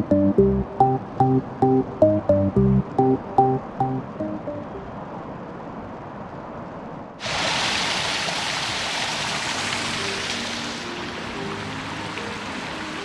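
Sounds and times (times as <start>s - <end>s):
mountain stream rushing: 7.2s - 13.0s.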